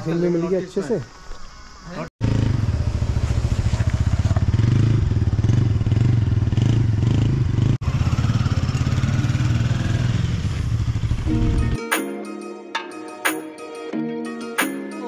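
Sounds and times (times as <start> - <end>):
motorcycle engine running: 2.2 - 11.5.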